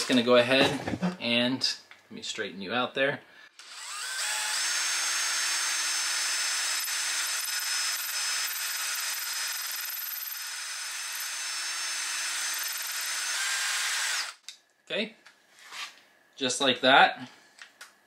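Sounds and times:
cordless drill whirring: 0:03.6 - 0:14.5.

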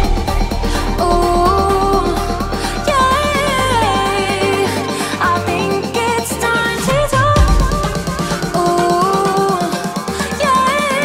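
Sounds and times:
pop music with steady beat: 0:00.0 - 0:11.0.

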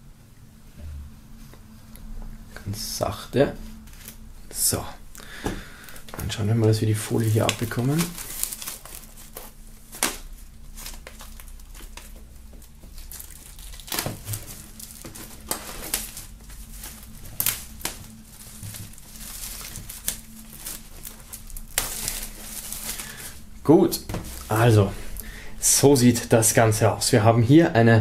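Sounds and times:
plastic film crinkling and tearing: 0:05.8 - 0:26.9.

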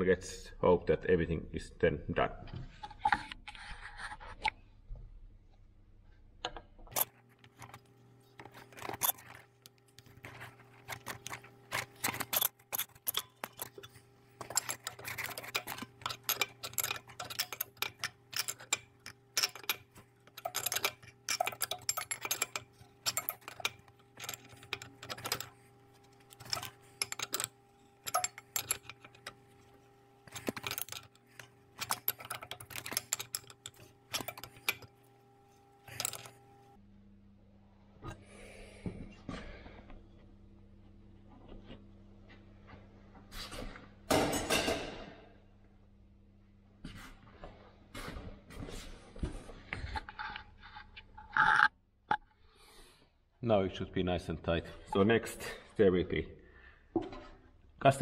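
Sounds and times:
steady low hum: 0:05.8 - 0:51.0.

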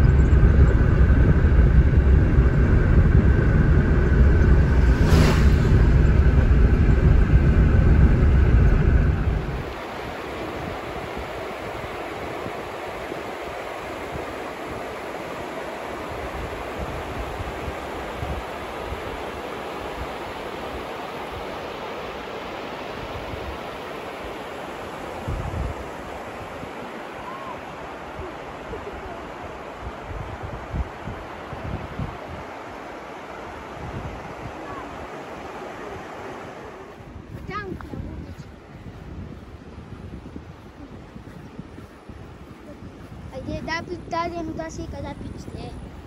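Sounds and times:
low rumble on microphone: 0:00.0 - 0:09.9, 0:35.8 - 0:46.0
brief hiss: 0:04.9 - 0:05.9
river water rushing: 0:09.5 - 0:37.3.

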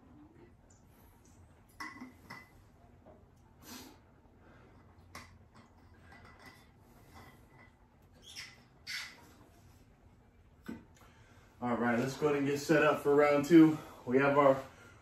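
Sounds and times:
person breathing: 0:11.0 - 0:11.6, 0:13.7 - 0:15.0.

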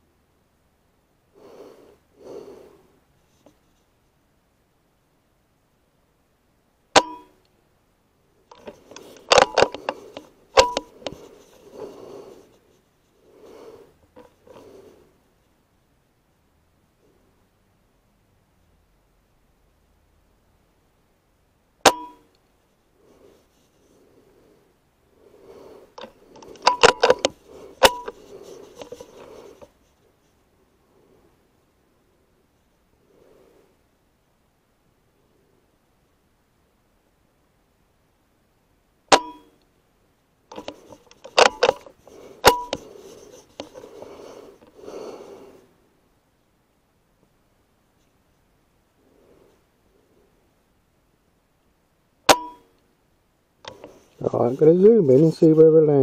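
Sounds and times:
handling noises: 0:08.5 - 0:15.0, 0:25.5 - 0:30.4, 0:40.5 - 0:45.3.

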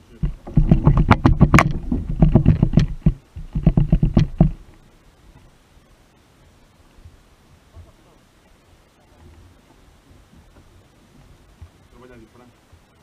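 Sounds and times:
knocking and rattling on kayak: 0:00.0 - 0:04.8.

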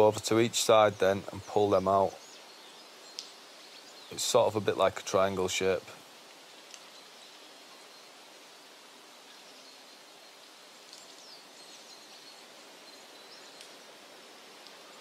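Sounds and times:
faint outdoor hiss: 0:00.0 - 0:15.0.

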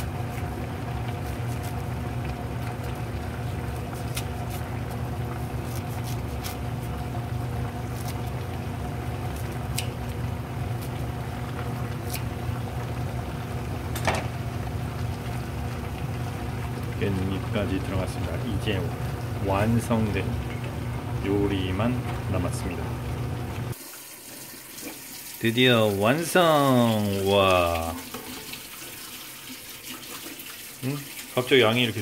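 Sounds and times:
food simmering and bubbling: 0:00.0 - 0:31.6
scissors snipping leaves: 0:04.0 - 0:04.6, 0:05.6 - 0:06.6, 0:07.9 - 0:08.3, 0:12.0 - 0:12.3.

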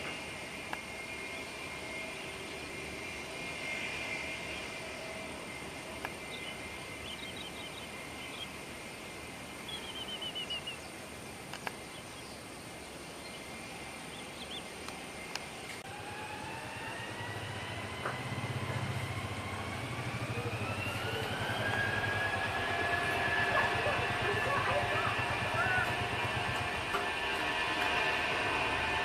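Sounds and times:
jet engines whining: 0:00.0 - 0:29.0
low hum: 0:00.0 - 0:29.0
bird chirps: 0:06.2 - 0:08.6, 0:09.6 - 0:11.0.

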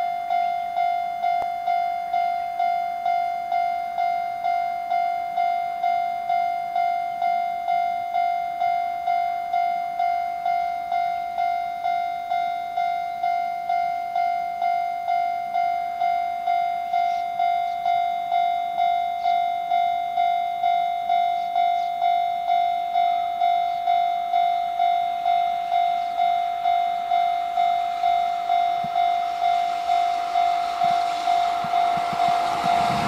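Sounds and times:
level-crossing alarm bell: 0:00.0 - 0:33.0.

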